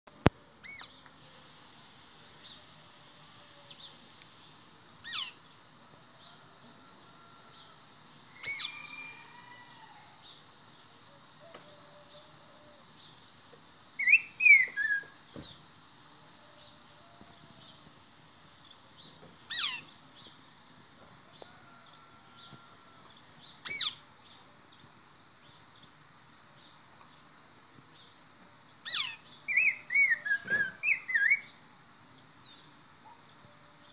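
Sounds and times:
bird sharp falling whistles: 0:14.0 - 0:15.6, 0:29.6 - 0:31.4.

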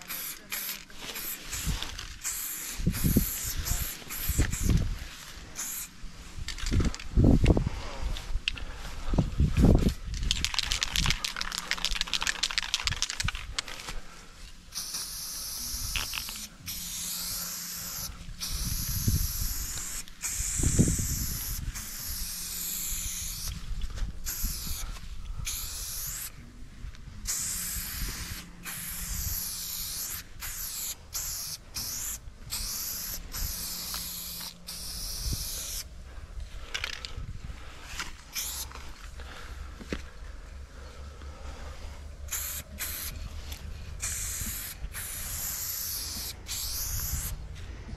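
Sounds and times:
spray paint can hissing: 0:00.0 - 0:07.0, 0:09.6 - 0:13.7, 0:14.7 - 0:26.4, 0:27.2 - 0:35.9, 0:38.3 - 0:38.8, 0:42.3 - 0:47.4.

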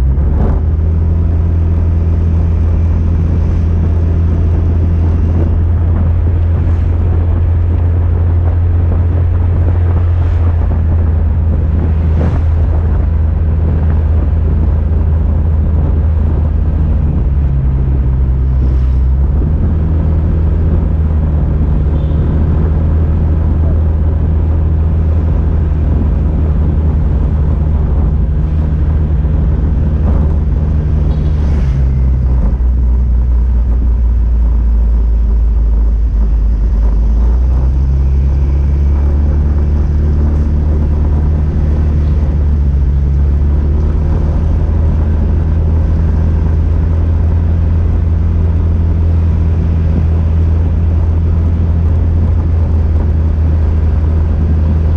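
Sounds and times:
wind and road rumble: 0:00.0 - 0:54.9.

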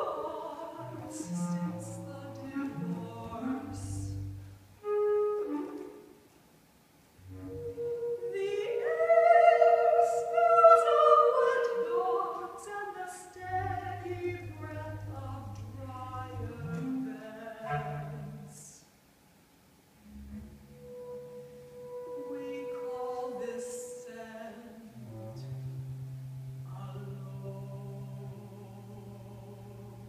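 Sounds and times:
woman singing classical song: 0:00.0 - 0:05.9, 0:07.3 - 0:18.9, 0:20.9 - 0:25.8, 0:26.6 - 0:30.0
bass clarinet: 0:00.8 - 0:06.2, 0:07.2 - 0:09.0, 0:13.4 - 0:18.5, 0:20.0 - 0:23.1, 0:24.9 - 0:30.0.

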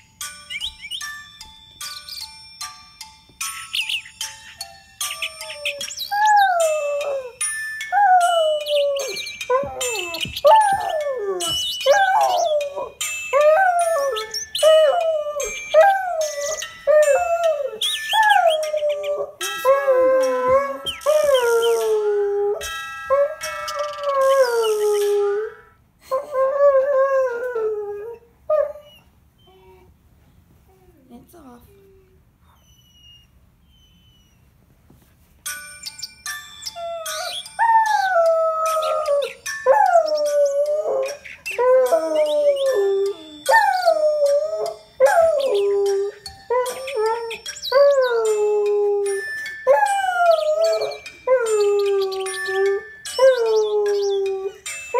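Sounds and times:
alarm clock tune: 0:00.0 - 0:24.4, 0:35.4 - 0:54.9.

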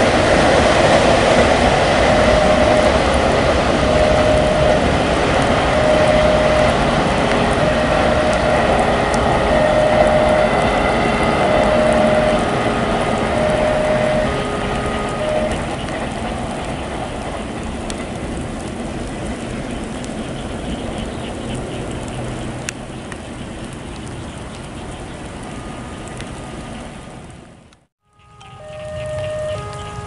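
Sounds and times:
level crossing warning bell: 0:00.0 - 0:17.6, 0:28.2 - 0:30.0
train wheels rumbling on track: 0:00.0 - 0:27.2.

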